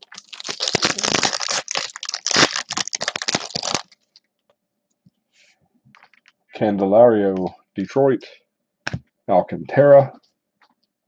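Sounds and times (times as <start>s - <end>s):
foil wrapper crinkling and tearing: 0.0s - 4.3s.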